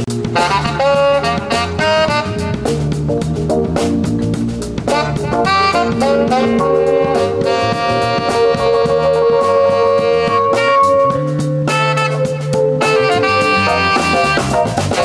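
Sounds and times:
drum kit: 0.0s - 15.0s
jazz band playing live: 0.0s - 15.0s
saxophone: 0.0s - 15.0s
low bass note: 4.8s - 11.0s.

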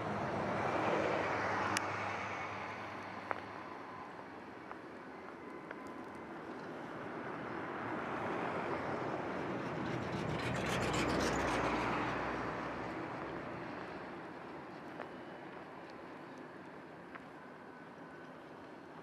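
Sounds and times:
bus driving past on snow: 7.0s - 15.6s.

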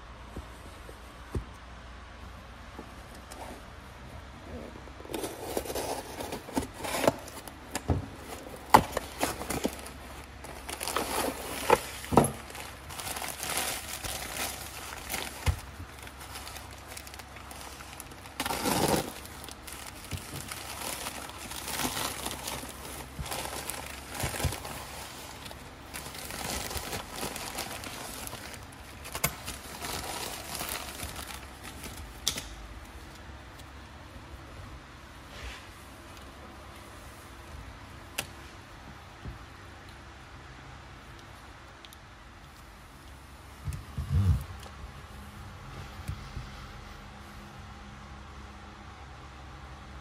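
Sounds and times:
cardboard and envelope rustling: 5.0s - 32.2s.

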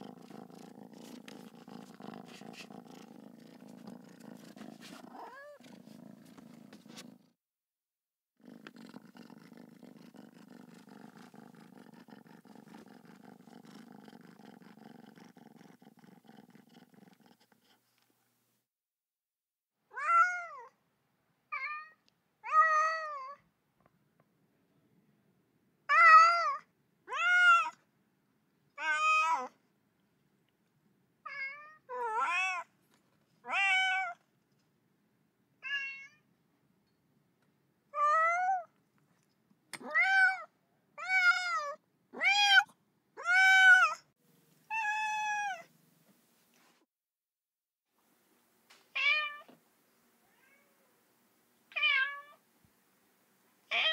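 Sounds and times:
cat meowing: 5.1s - 5.6s, 19.9s - 20.7s, 31.3s - 32.7s, 33.4s - 34.2s, 35.6s - 36.2s, 38.0s - 38.7s, 39.8s - 44.0s, 44.7s - 45.7s, 49.0s - 49.5s, 50.2s - 50.9s, 51.7s - 52.4s.

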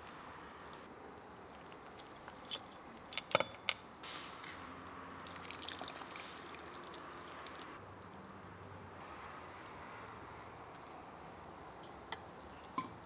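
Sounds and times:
broth dripping and splashing: 4.7s - 7.8s.

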